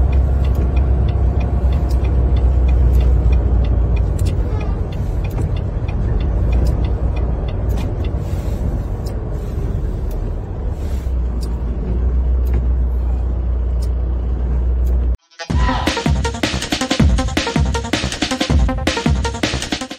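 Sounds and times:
truck rumble: 0:00.0 - 0:19.8
music: 0:15.2 - 0:19.9.

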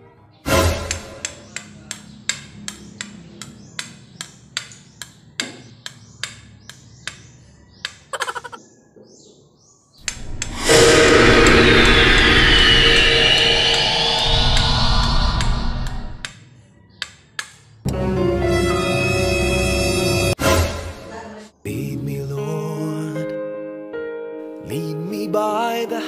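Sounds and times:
rushing horror sound effect: 0:10.1 - 0:16.2
steady drone: 0:10.1 - 0:16.2.

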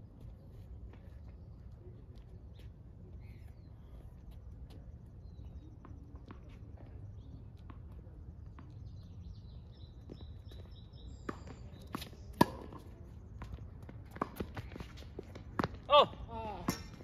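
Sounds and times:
faint bird chirps: 0:00.4 - 0:07.6, 0:08.6 - 0:12.4
tennis ball struck and bouncing: 0:11.3 - 0:13.5, 0:16.6 - 0:17.0.

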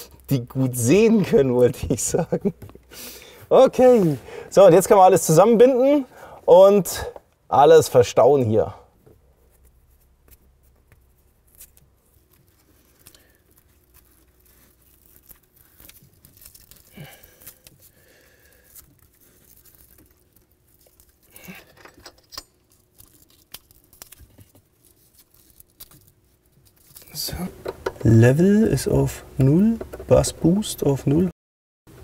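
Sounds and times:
wiring rustling: 0:08.4 - 0:30.7.

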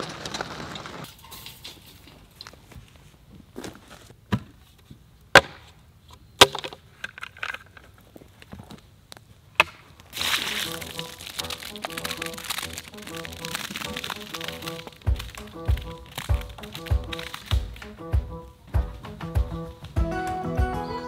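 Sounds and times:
chicken feed pouring onto ground: 0:10.1 - 0:17.8.

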